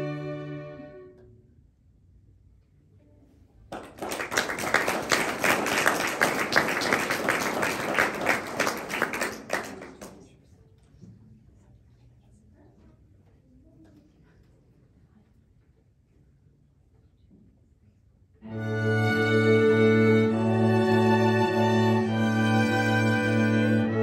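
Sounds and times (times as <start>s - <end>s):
string quartet chord: 0.0s - 1.3s, 18.4s - 24.0s
audience applause: 3.7s - 10.3s.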